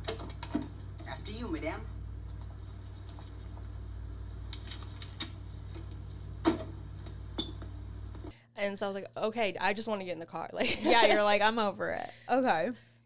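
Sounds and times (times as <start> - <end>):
steady low hum: 0.0 - 8.6.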